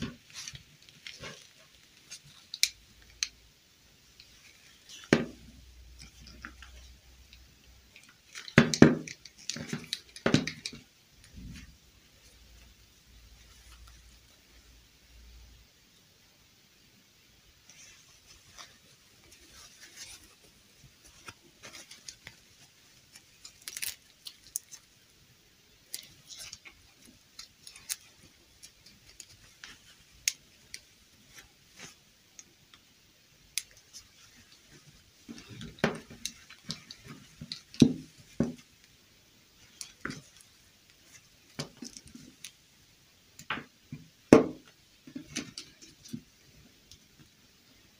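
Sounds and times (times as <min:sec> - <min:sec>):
plastic dolls clicking and knocking: 0:02.1 - 0:03.4, 0:04.2 - 0:11.5, 0:33.5 - 0:38.8.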